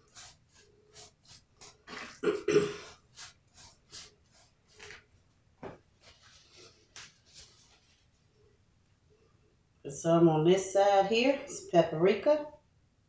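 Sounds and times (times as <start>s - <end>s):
hands rubbing fish fillet: 0.0s - 2.2s, 2.8s - 5.1s, 6.0s - 8.3s
paper towel ripping: 0.0s - 5.1s.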